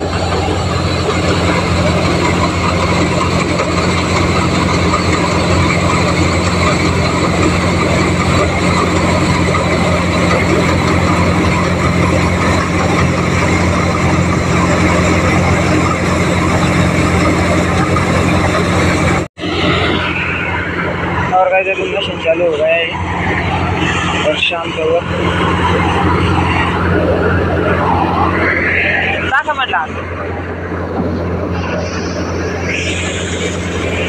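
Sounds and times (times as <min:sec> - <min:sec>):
diesel engine humming: 0:00.0 - 0:34.0
thresher machine running: 0:00.0 - 0:34.0.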